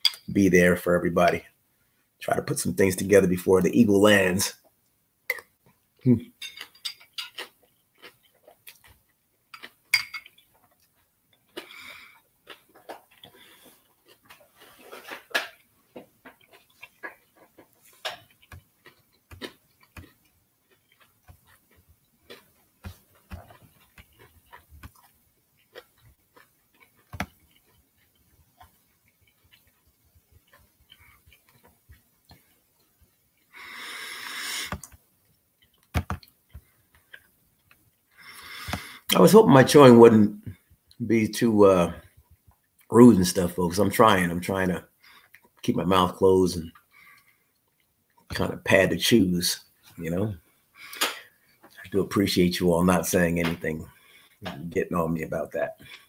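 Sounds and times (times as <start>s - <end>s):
chewing crunch: 5.3s - 39.1s, 46.6s - 48.4s, 55.7s - 56.0s.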